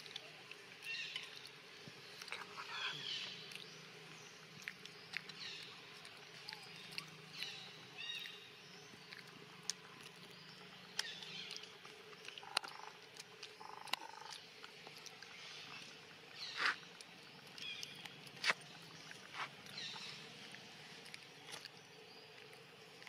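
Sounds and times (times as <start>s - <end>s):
animal chirps and squeaks: 2.3s - 3.4s.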